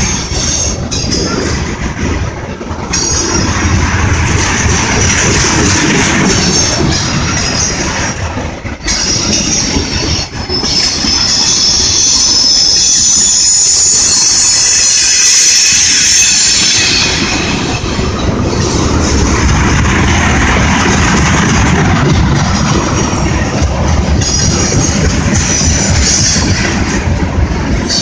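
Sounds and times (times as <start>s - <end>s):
freight train wheels on rails: 0.0s - 28.0s
wheel squeal: 8.8s - 18.8s.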